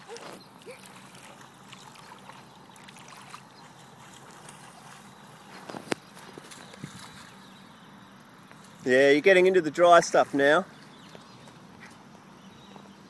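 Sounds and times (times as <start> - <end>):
water splashing over grass: 0.0 - 7.5.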